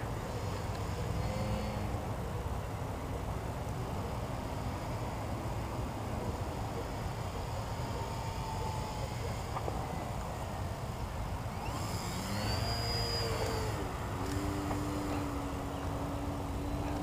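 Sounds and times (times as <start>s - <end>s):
model plane motor whine: 6.6s - 17.0s.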